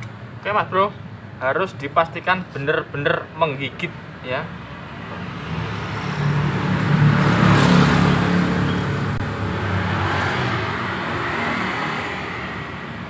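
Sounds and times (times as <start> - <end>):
vehicle engine passing by: 5.1 - 13.0.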